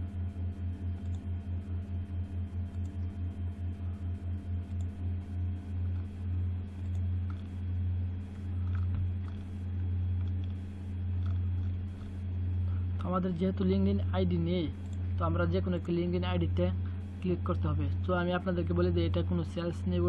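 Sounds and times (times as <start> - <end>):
pulsing electrical hum: 0.0 - 20.0.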